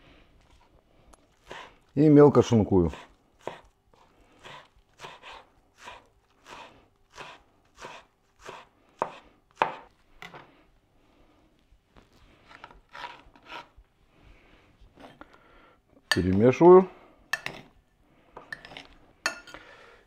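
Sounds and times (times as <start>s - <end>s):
knife chopping on cutting board: 2.9s - 3.7s, 4.4s - 9.9s
knife scraping board: 2.9s - 10.5s, 12.5s - 13.8s.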